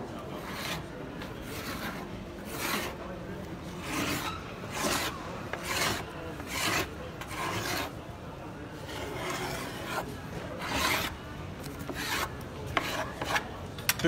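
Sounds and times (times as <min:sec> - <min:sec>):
scrubbing tool rasping on wooden door: 0:00.4 - 0:03.0, 0:03.8 - 0:08.0, 0:08.9 - 0:11.2, 0:11.8 - 0:13.4.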